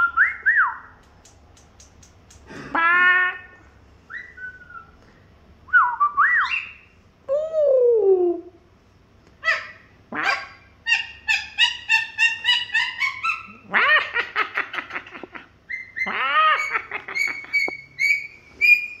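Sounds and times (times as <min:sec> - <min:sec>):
parrot calling: 0:02.5 - 0:05.0, 0:06.4 - 0:06.9, 0:09.4 - 0:19.0.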